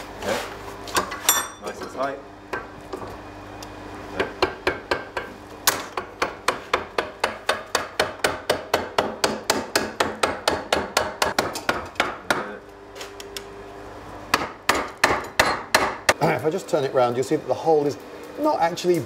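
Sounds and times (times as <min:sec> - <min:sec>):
hammer beating hot metal: 0:04.2 - 0:12.6, 0:14.3 - 0:16.2.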